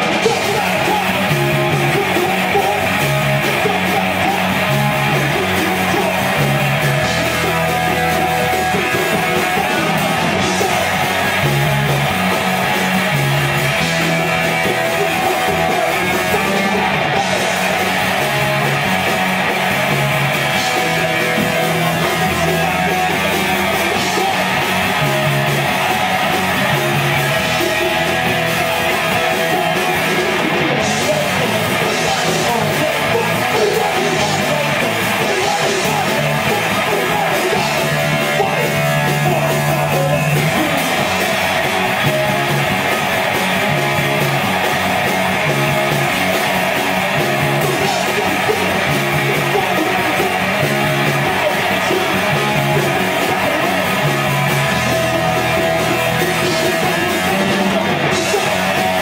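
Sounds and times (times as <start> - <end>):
punk band playing live: 0.0 - 59.0
singer yelling: 0.0 - 59.0.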